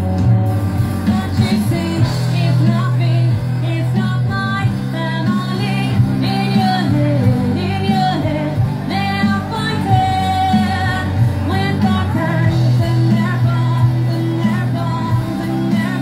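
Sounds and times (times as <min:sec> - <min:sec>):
drums: 0:00.0 - 0:16.0
electric guitar: 0:00.0 - 0:16.0
woman singing: 0:00.9 - 0:16.0.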